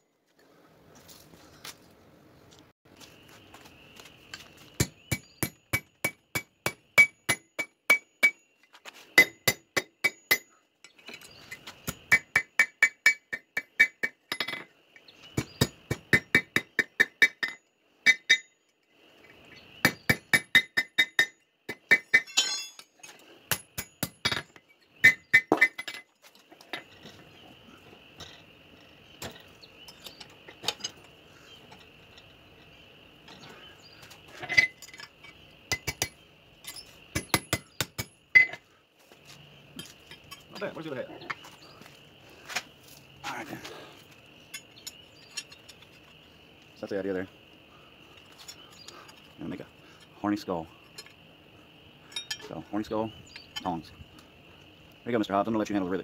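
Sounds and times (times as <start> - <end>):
hammer striking tongs on anvil: 21.9 - 22.9.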